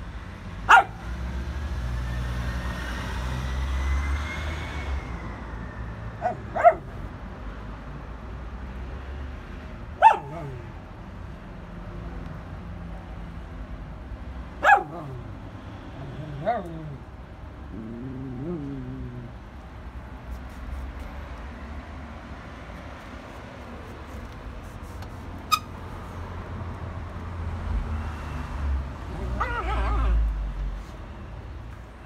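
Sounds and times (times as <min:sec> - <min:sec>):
passing vehicle rumble: 0:00.0 - 0:32.0
dog barking: 0:00.7 - 0:01.0, 0:06.2 - 0:07.0, 0:10.0 - 0:10.7, 0:14.6 - 0:15.2, 0:29.2 - 0:30.2.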